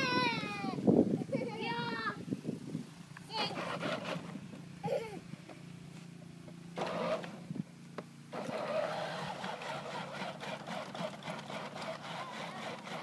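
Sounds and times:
toy car electric motors whirring: 3.3s - 5.0s, 6.8s - 7.4s, 8.3s - 13.0s.

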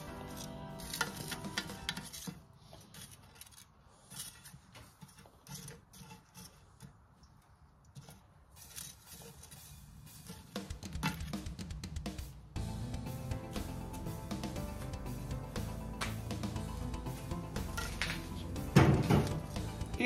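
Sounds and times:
background music: 0.0s - 2.4s, 9.5s - 20.0s.

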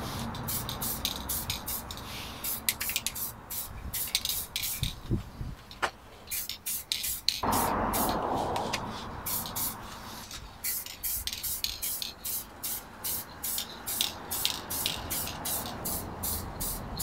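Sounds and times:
aerosol spray hissing in bursts: 0.0s - 4.8s, 8.9s - 17.0s.

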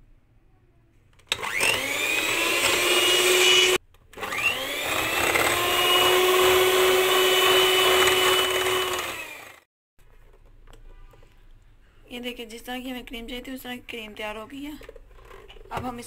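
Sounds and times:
electric hand mixer whining: 1.3s - 9.7s.

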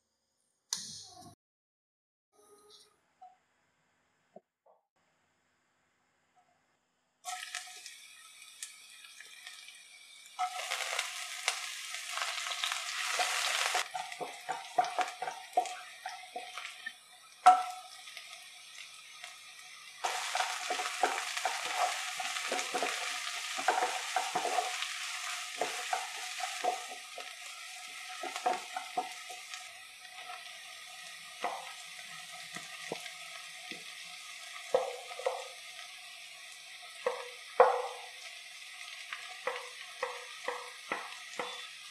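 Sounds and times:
vegetables sizzling in oil: 7.2s - 41.9s
wooden spatula scraping pan: 20.1s - 27.3s.

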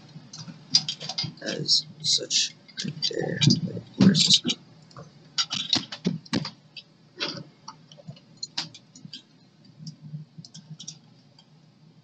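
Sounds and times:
small clicks and taps of parts: 4.8s - 11.5s.

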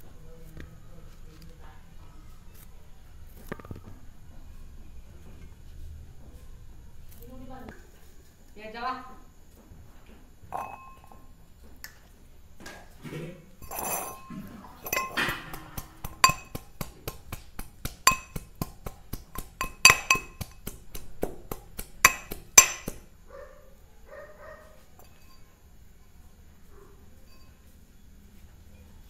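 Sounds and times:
metal pestle pounding in mortar: 13.6s - 23.1s.

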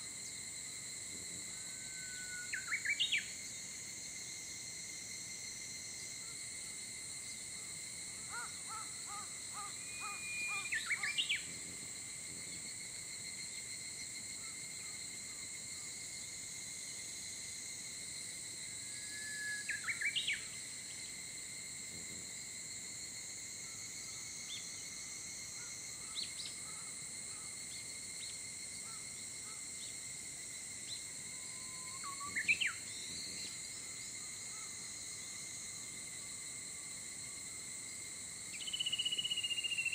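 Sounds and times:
high-pitched insect chorus: 0.0s - 39.9s
bird whistling song: 19.2s - 20.5s, 31.6s - 32.8s.

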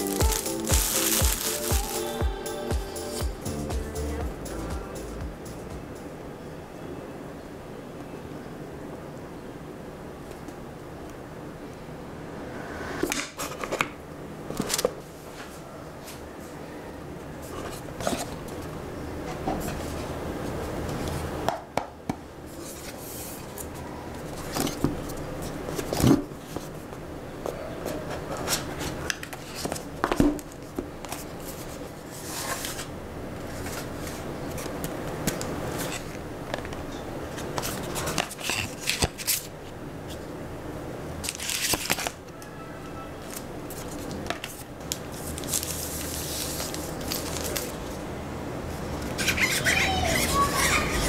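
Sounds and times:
paper and plastic wrap rustling: 0.0s - 2.3s, 41.2s - 42.2s, 43.2s - 48.0s.

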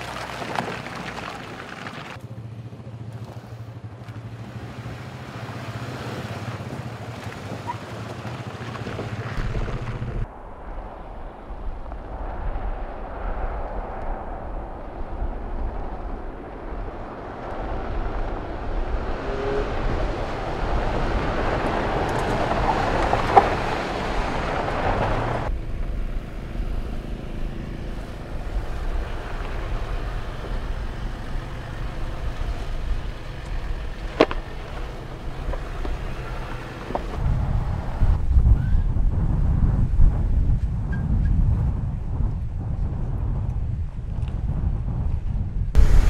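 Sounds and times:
tyres on gravel: 0.0s - 10.4s, 19.8s - 26.2s, 26.9s - 37.2s
suv engines: 0.0s - 44.3s, 45.7s - 46.0s.

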